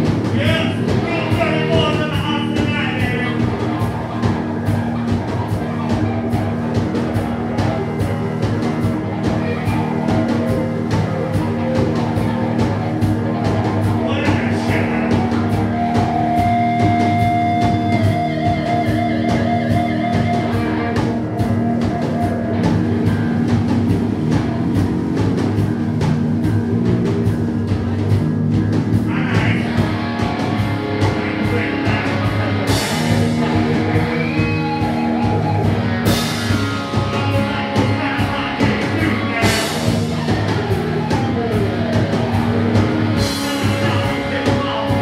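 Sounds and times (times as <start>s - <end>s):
drum kit beat: 0.0s - 45.0s
electric guitar: 0.0s - 45.0s
person singing: 29.1s - 30.4s, 31.0s - 42.4s, 43.1s - 45.0s.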